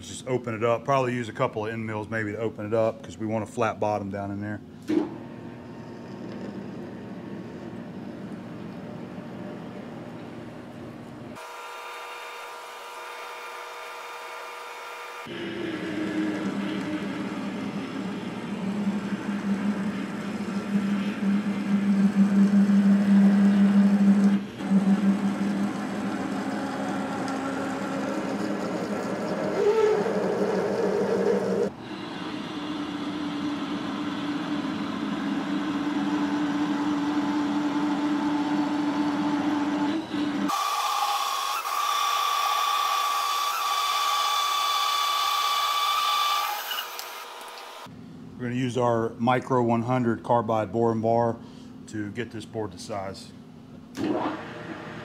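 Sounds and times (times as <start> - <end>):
high thin machine whine: 15.2 - 40.6
metal lathe drilling and cutting: 39.9 - 47.5.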